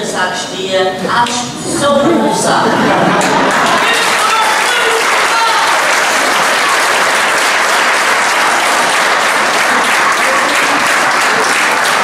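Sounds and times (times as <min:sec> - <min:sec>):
audience applause: 0:02.8 - 0:12.0.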